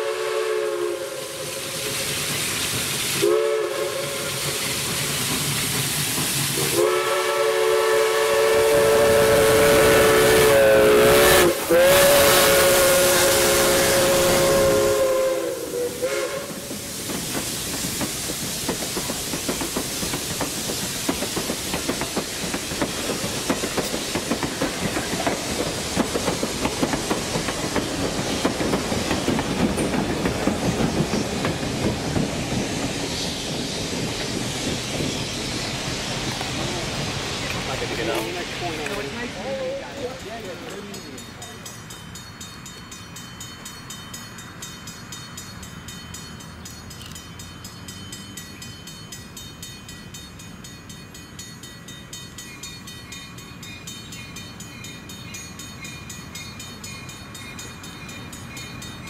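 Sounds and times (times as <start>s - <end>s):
steam locomotive chime whistle: 0.0s - 2.3s, 3.1s - 4.8s, 6.6s - 17.0s
wheels clacking over rail joints: 4.0s - 6.8s, 17.1s - 41.9s.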